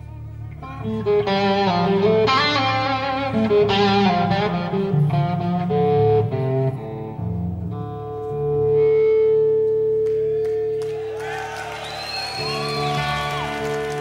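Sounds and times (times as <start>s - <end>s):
bass line: 0.0s - 9.5s
guitar melodic lead: 0.0s - 11.2s, 12.2s - 14.0s.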